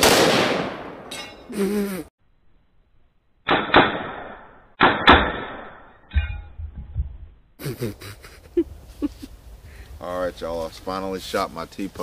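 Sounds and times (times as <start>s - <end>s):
rifle shots echoing: 0.0s - 1.1s
metal target clattering down: 4.9s - 7.0s.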